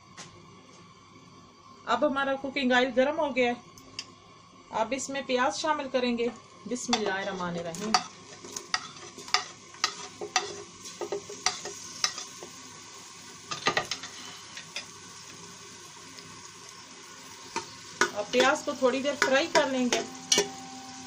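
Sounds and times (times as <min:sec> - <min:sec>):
onions sizzling in hot oil: 0:06.6 - 0:21.0.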